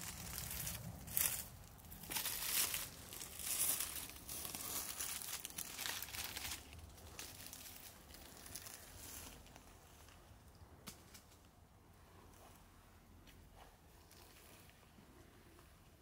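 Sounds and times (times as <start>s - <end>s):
dry leaves rustling: 0.0s - 11.4s.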